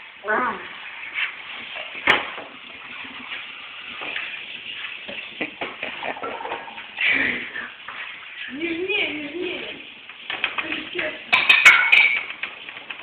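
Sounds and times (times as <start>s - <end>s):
dough kneaded on metal tray: 8.4s - 13.0s.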